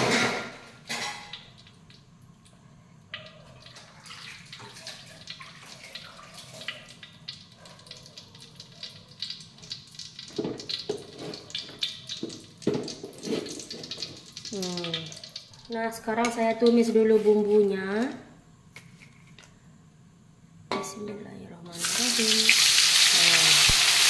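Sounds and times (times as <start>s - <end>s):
oil crackling in a wok: 1.2s - 15.7s, 21.8s - 24.0s.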